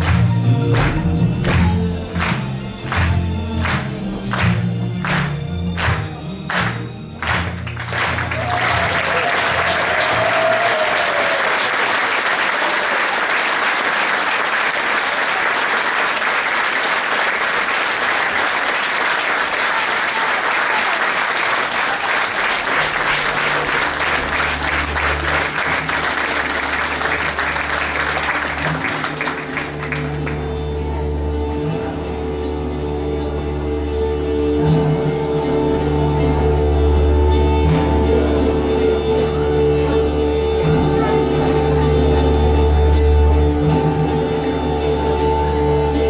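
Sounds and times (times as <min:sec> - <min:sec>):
instrumental music: 0:00.0 - 0:10.6, 0:21.3 - 0:46.0
audience applauding: 0:00.0 - 0:30.6
folk dance music: 0:00.0 - 0:46.0.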